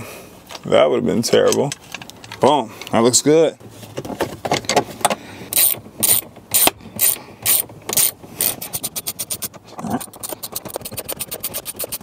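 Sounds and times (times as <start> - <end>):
socket ratchet clicking: 5.5 - 12.0.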